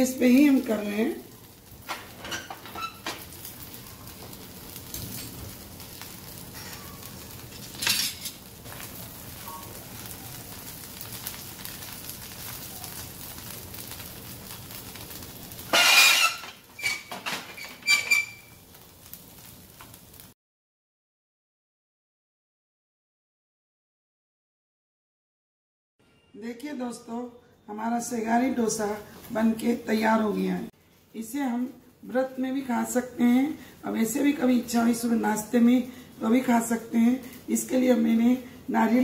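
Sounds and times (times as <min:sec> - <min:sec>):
batter sizzling on a hot pan: 0:00.0 - 0:20.4
spatula knocking and scraping pan: 0:15.7 - 0:18.4.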